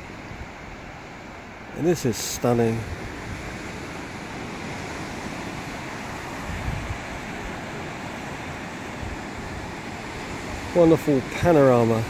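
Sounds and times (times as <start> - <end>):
surf breaking on beach: 0.0 - 12.0
wind buffeting microphone: 2.8 - 11.6.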